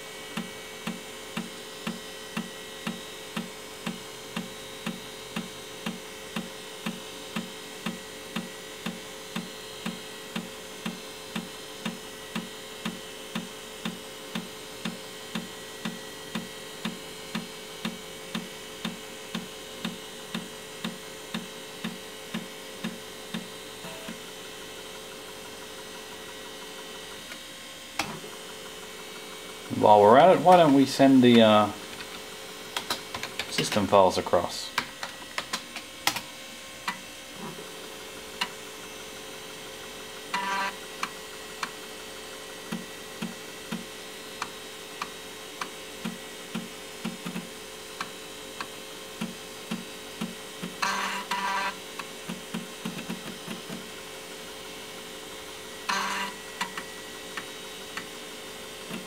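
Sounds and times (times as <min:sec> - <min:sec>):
floppy drive hum: 0:00.0 - 0:59.0.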